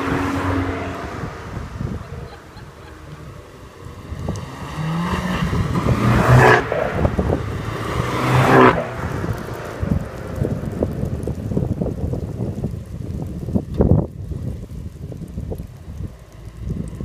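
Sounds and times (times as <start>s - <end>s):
cars driving past: 0.0s - 11.6s.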